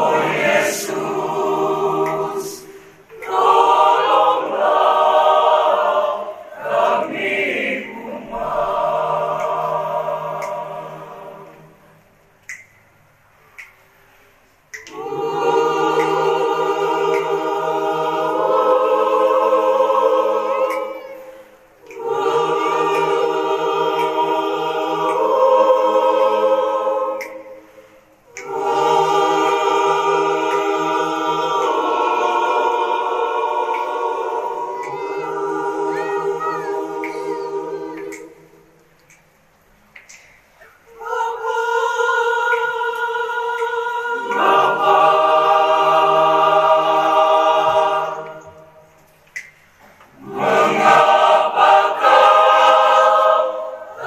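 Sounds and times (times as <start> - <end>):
choir singing: 0.0 - 12.6, 14.7 - 54.0.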